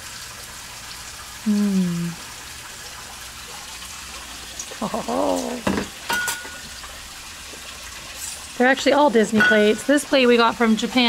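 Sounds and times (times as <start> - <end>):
running splashing water: 0.0 - 11.0
person humming: 1.4 - 2.2, 4.7 - 5.7
person murmuring: 1.5 - 2.2, 4.7 - 5.6.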